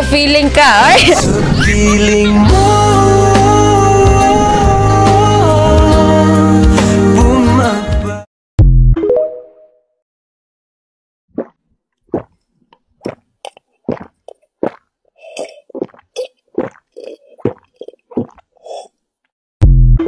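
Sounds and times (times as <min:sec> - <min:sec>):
sipping slurping and chewing: 0:12.1 - 0:19.0.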